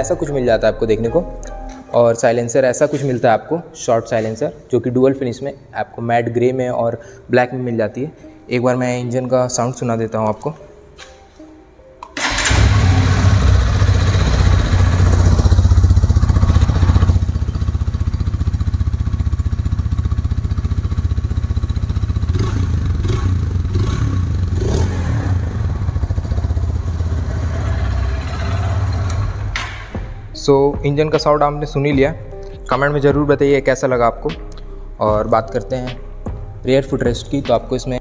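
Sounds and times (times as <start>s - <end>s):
motorcycle engine starting and idling: 12.2s - 30.0s.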